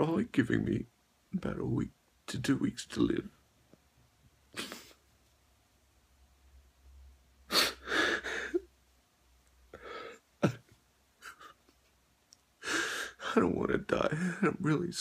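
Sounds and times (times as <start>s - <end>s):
man sniffling and sobbing: 4.5s - 5.0s, 7.5s - 8.8s, 9.7s - 11.9s, 12.6s - 13.5s, 14.1s - 14.6s.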